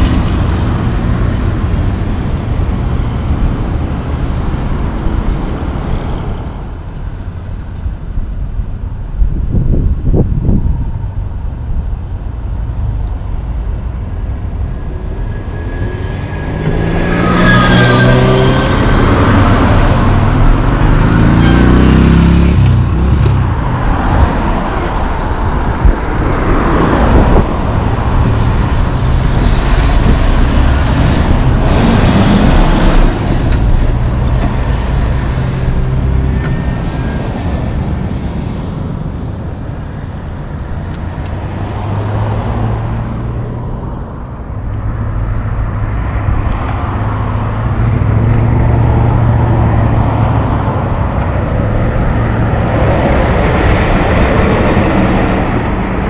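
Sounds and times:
heavy road traffic: 0.0 - 56.0
truck and tyre noise: 0.0 - 56.0
truck driving past: 13.4 - 56.0.

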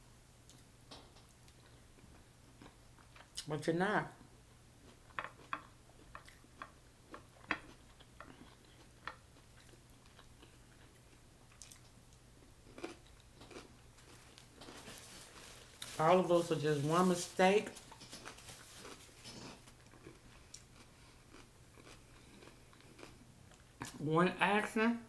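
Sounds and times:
soft chewing: 0.4 - 3.5, 4.2 - 16.0, 17.7 - 24.0
crab legs clicking and crackling: 4.9 - 12.2
paper towel rustling: 14.7 - 19.2.

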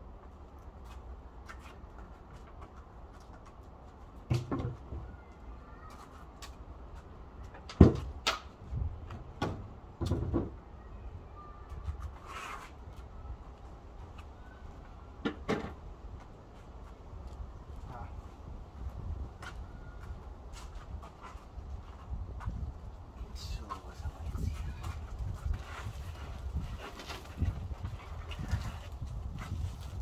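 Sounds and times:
knocks on wooden box: 4.3 - 5.0, 7.8 - 8.1, 9.1 - 10.6.

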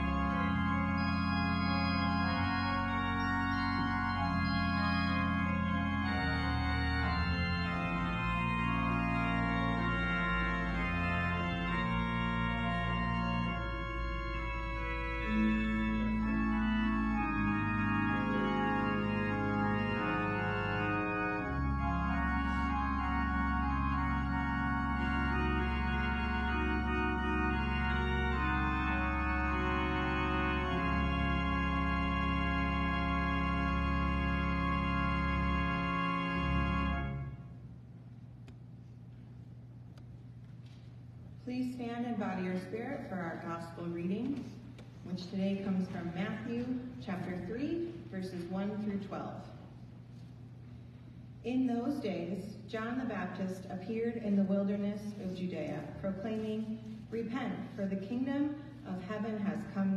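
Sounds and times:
church organ playing chords: 0.0 - 38.0.

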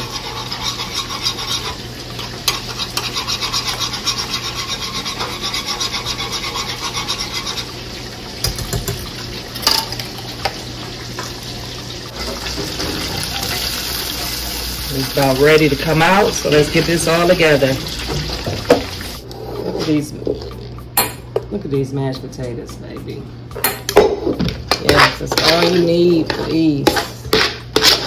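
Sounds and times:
whisk scraping metal skillet: 0.0 - 8.6, 13.2 - 20.2, 24.7 - 28.0.

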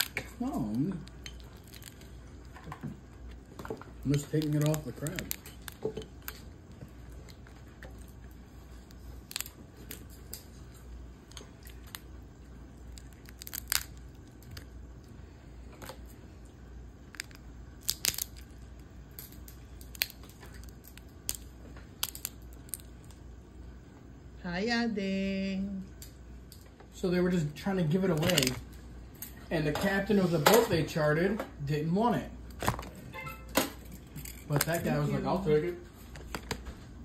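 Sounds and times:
crab shell cracking and tearing: 0.0 - 15.1, 17.0 - 23.2, 28.2 - 28.6.

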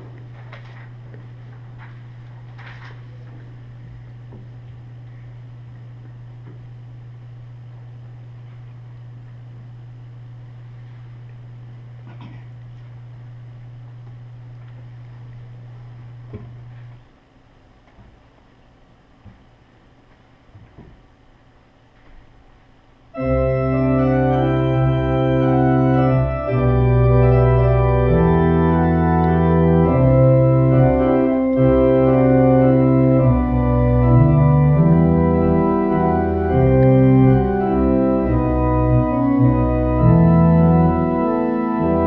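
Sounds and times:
church organ playing full chords: 23.1 - 42.0.

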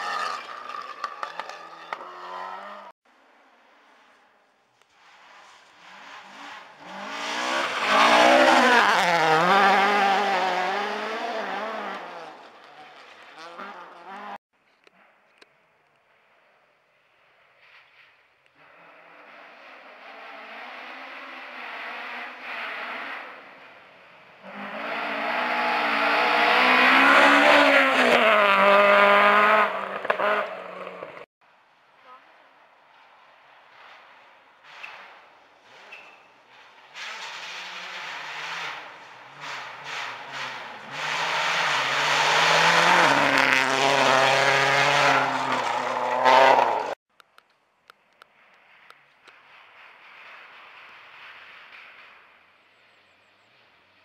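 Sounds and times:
rally car engine at full revs: 5.9 - 14.4, 18.6 - 23.7, 24.4 - 31.3, 37.1 - 47.0.

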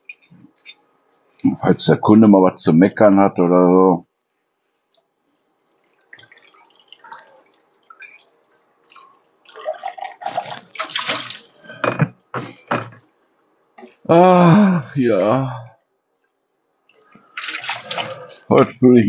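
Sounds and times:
water splashing in sink: 5.8 - 11.7, 16.9 - 18.5.

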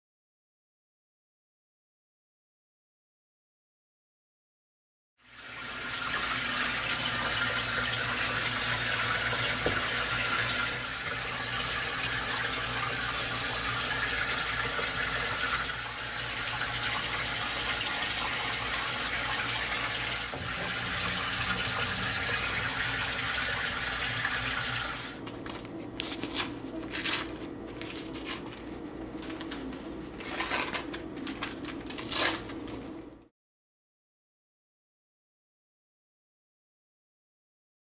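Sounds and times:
kitchen tap running: 5.2 - 25.3.

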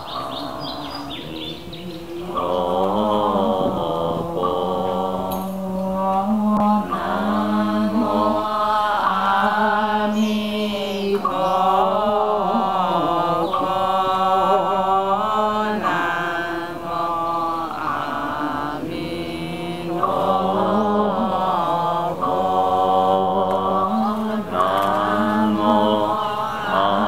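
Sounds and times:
group of voices chanting: 0.0 - 27.0.

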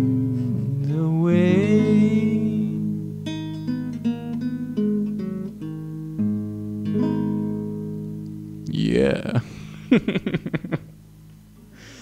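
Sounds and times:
classical guitar playing: 0.0 - 8.7, 9.4 - 10.2.

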